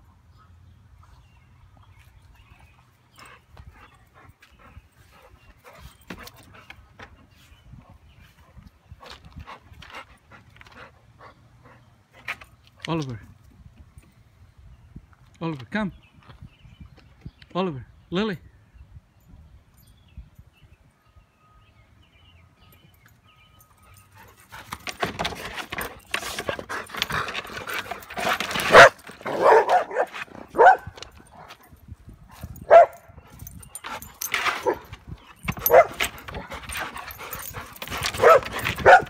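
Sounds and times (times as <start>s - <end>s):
dog barking and whimpering: 28.6s - 30.9s, 32.6s - 33.1s, 34.6s - 34.9s, 35.6s - 39.0s.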